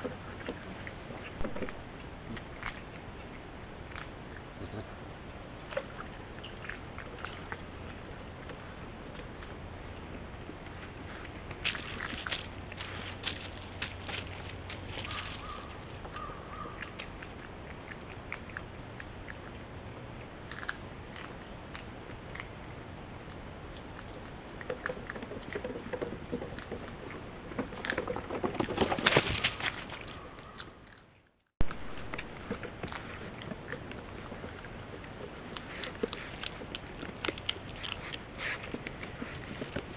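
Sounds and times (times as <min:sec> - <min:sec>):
otters clicking and crackling: 0:05.3 - 0:39.9.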